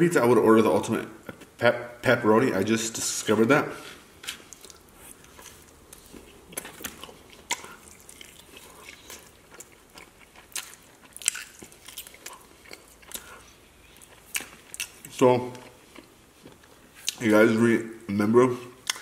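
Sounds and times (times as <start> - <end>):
man chewing and biting: 4.3 - 17.2.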